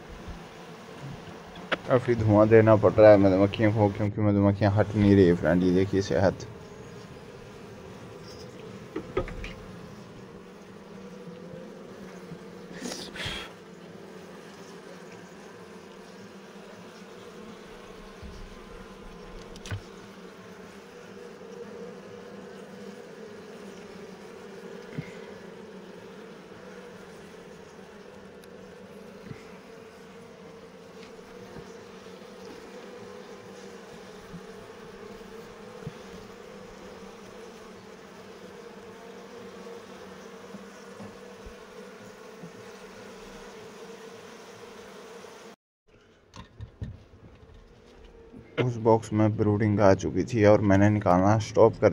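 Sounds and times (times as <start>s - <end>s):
bees buzzing: 0.0s - 51.9s.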